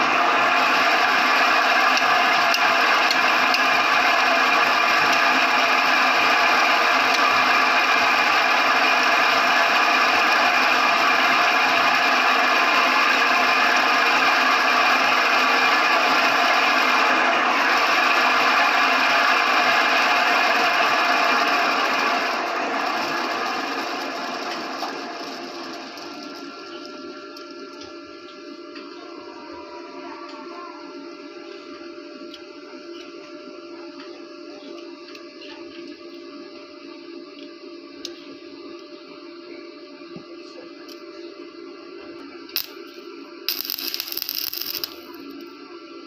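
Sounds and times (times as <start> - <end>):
grinder motor whirring: 0.0 - 28.3, 42.5 - 45.4.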